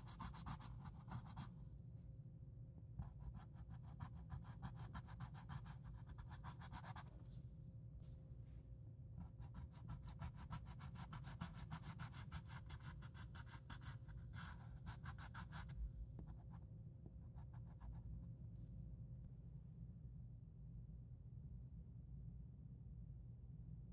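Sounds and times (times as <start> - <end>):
pencil scratching on paper: 0.0 - 1.5, 3.0 - 7.4, 9.2 - 16.6.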